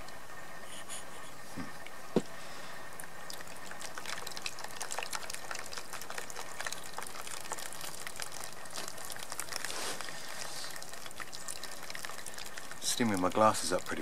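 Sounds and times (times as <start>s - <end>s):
water pouring from kettle: 2.9s - 14.0s
water splashing: 3.0s - 14.0s.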